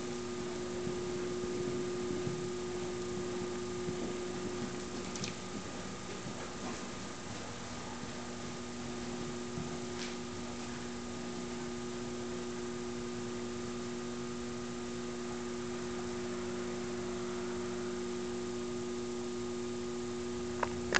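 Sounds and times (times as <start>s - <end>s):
electrical hum with held tones: 0.0s - 20.9s.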